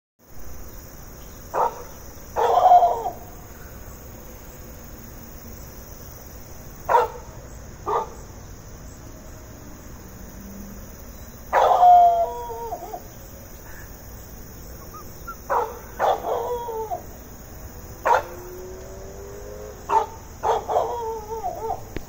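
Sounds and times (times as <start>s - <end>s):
dog barking: 1.6s - 3.2s, 6.9s - 7.3s, 7.9s - 8.2s, 11.5s - 13.0s, 14.9s - 17.0s, 18.0s - 18.4s, 19.9s - 21.9s.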